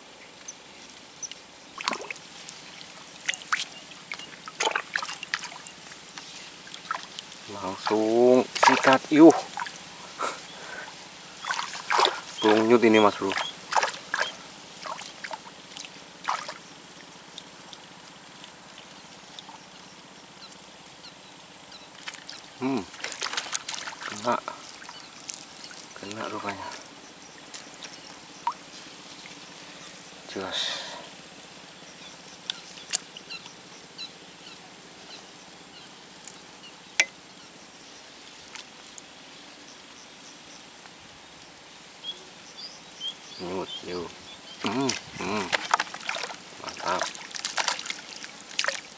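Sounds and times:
faint steady hiss: 0.0 - 48.9
bird chirps: 10.3 - 14.4, 42.0 - 45.5.

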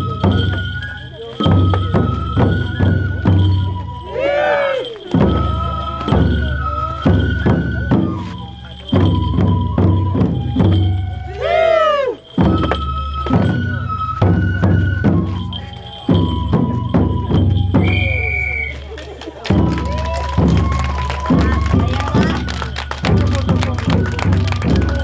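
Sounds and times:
taiko drum beating: 0.0 - 18.8, 19.4 - 25.0
high swooping call: 0.0 - 19.0
bamboo flute notes: 0.0 - 25.0.

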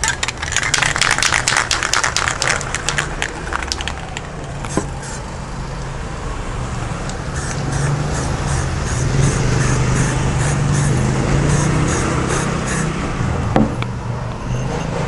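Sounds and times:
spray can rattling: 0.0 - 5.2, 11.5 - 12.8.

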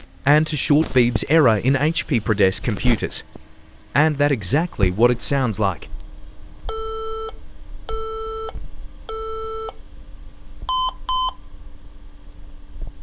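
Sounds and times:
long low computer beeps: 6.7 - 9.8, 10.7 - 11.4.

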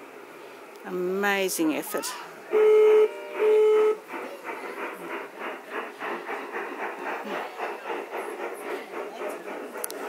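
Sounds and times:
steam locomotive chuffing: 2.4 - 10.0
steam locomotive whistle: 2.5 - 4.1.

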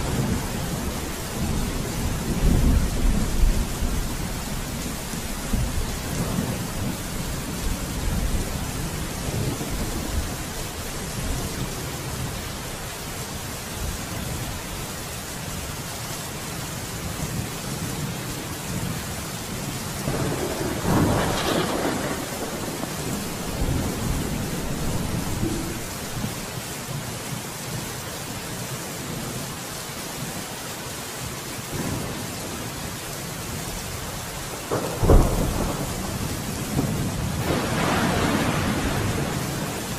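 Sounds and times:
thunder rumbling: 0.0 - 12.4, 20.0 - 26.5, 34.6 - 39.9
steady rain: 0.0 - 39.9.

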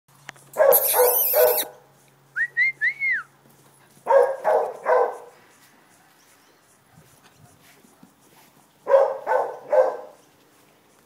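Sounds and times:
dog barking: 0.6 - 1.8, 4.1 - 5.4, 8.8 - 10.2
short whistled notes: 0.8 - 1.7.

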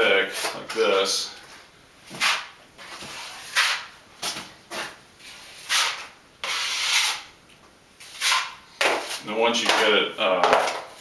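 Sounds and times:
drywall knife scraping: 2.1 - 7.3, 8.0 - 9.9.

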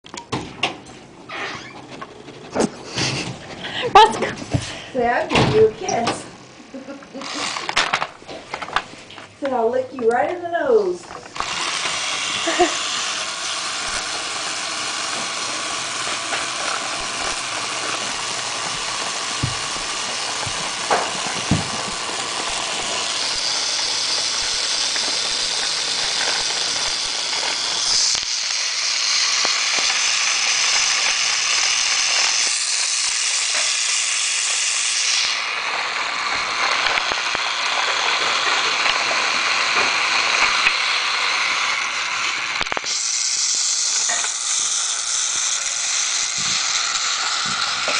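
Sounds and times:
toy train motor whirring: 1.4 - 47.9
wheels rattling on plastic rails: 35.6 - 42.5.

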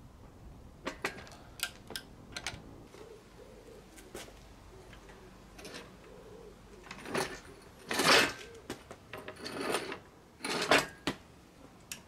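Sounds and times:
metal creaking and scraping: 4.8 - 6.2, 6.8 - 11.1.

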